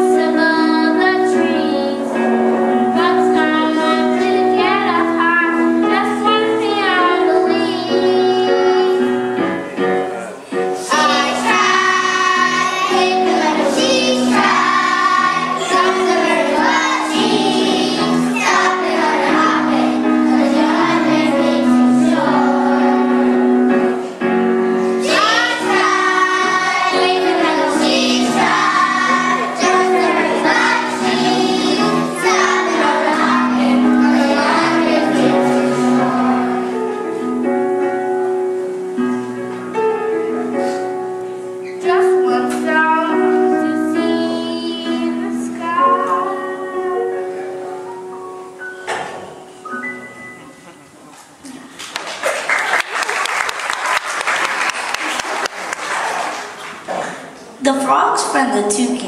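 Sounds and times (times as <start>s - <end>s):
instrumental accompaniment: 0.0s - 52.1s
children singing: 10.7s - 24.0s, 25.0s - 37.1s.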